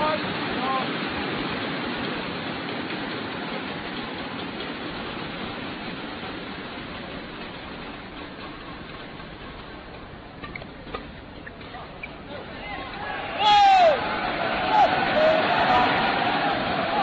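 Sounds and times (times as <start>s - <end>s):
crowd cheering and clapping: 12.2s - 17.0s.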